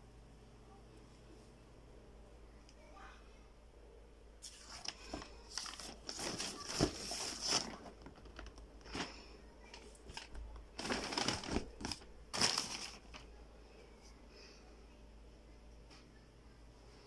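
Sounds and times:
paper bag crinkling: 4.4s - 13.3s
cardboard box being handled: 4.5s - 8.2s, 10.8s - 12.9s.

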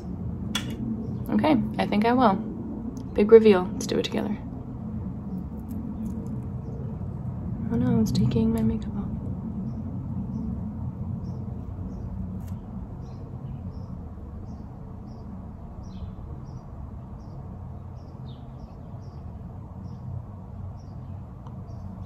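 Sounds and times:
low room rumble: 0.0s - 22.0s
small birds chirping: 7.6s - 22.0s.

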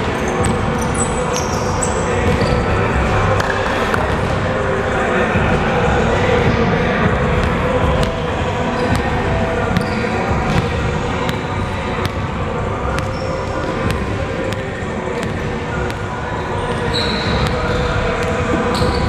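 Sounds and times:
sneaker squeak: 0.0s - 4.2s, 8.0s - 19.0s
faint voices: 0.0s - 19.0s
basketballs bouncing on hardwood: 9.8s - 11.4s.

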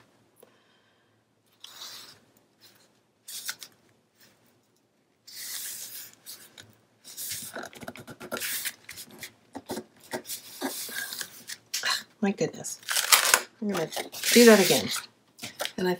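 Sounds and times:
paper rustling and scraping: 12.9s - 15.0s.

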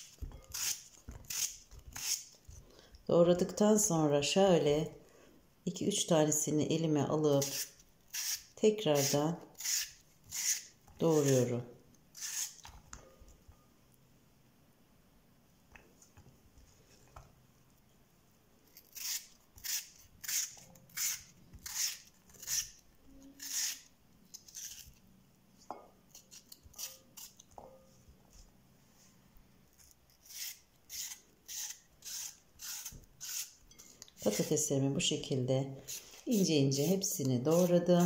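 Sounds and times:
knife slicing raw potato: 7.4s - 11.6s, 12.2s - 12.7s, 18.7s - 25.0s, 30.1s - 33.6s, 34.2s - 34.6s, 35.8s - 38.0s.

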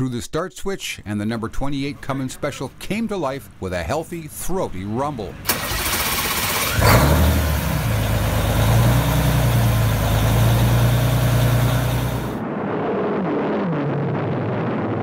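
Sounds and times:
diesel engine idling: 4.8s - 12.4s.

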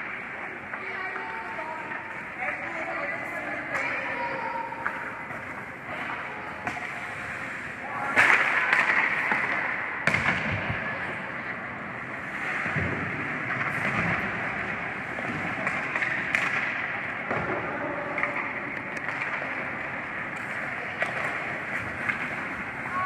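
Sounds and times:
hockey sticks and puck clacking: 0.0s - 23.0s
skate blades scraping ice: 18.4s - 23.0s.

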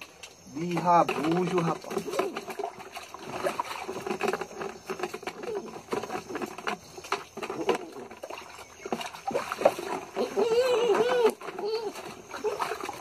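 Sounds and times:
water splashing in bucket: 0.0s - 13.0s
dog whining: 10.2s - 12.6s.

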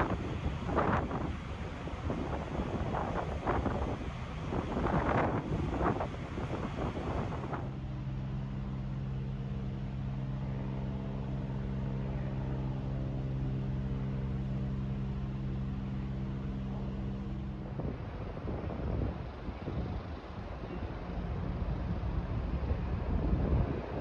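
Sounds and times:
ship engine low drone: 0.0s - 24.0s.

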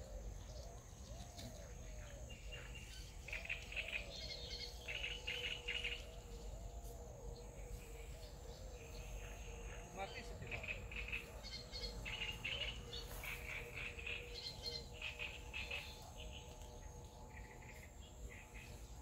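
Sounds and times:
soft low bird calls: 0.0s - 19.0s.

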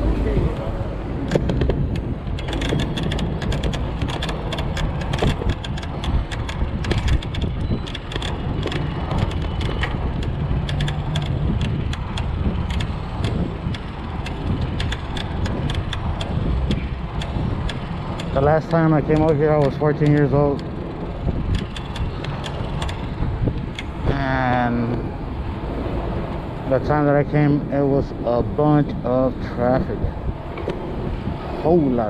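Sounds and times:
road noise: 0.0s - 32.0s
wind buffeting microphone: 0.0s - 32.0s
bike clicks and rattles: 1.2s - 25.1s.

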